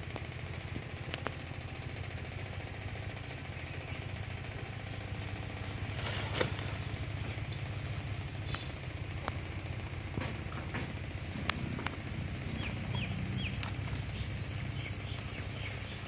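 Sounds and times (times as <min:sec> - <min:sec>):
small engine chugging: 0:00.0 - 0:16.0
plastic sack rustling: 0:05.8 - 0:06.8.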